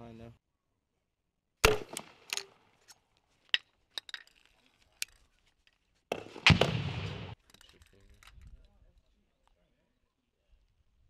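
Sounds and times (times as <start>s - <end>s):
loud gunshot report: 6.3s - 7.4s.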